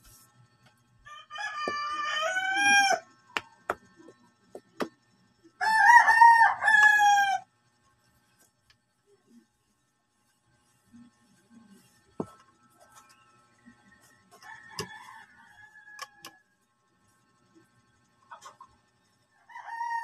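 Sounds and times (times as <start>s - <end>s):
rooster crowing: 1.1s - 3.1s, 5.6s - 7.5s, 14.3s - 16.4s, 19.5s - 20.0s.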